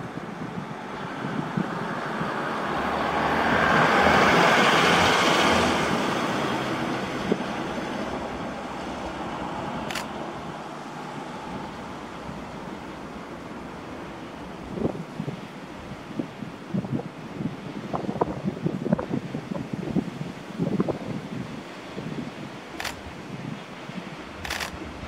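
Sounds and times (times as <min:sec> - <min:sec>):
vehicle passing by: 0:00.8 - 0:15.3.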